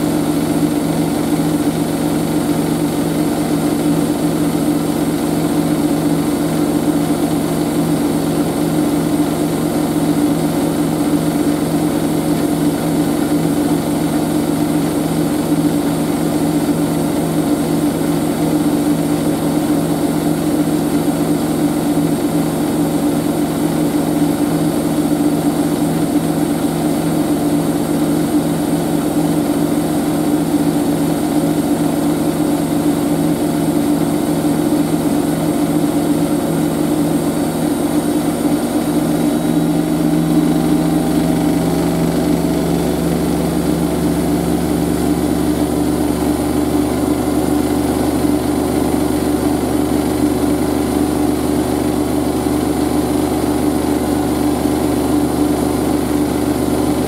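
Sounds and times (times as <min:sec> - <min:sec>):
washing machine motor and drum hum: 0:00.0 - 0:57.0.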